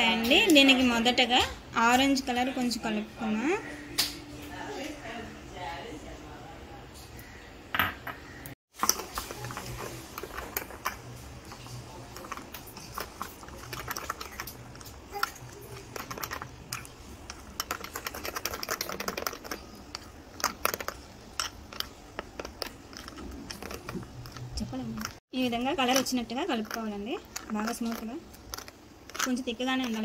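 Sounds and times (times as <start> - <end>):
batter squishing in glass bowl: 8.8 - 30.0.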